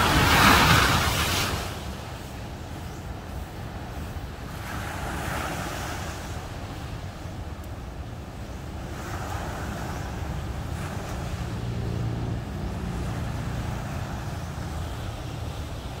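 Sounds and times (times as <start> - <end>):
surf washing on sandy beach: 0.0 - 16.0
wind rumbling on microphone: 0.0 - 16.0
low engine hum: 8.7 - 16.0.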